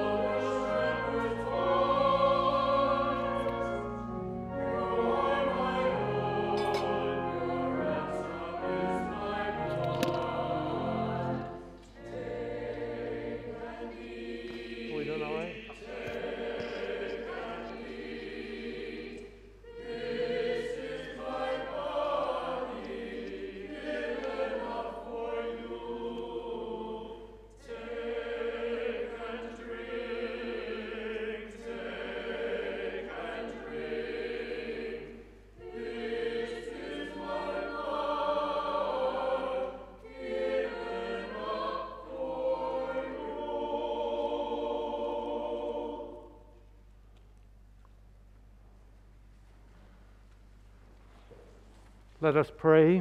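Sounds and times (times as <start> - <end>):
church choir singing: 0.0 - 46.9.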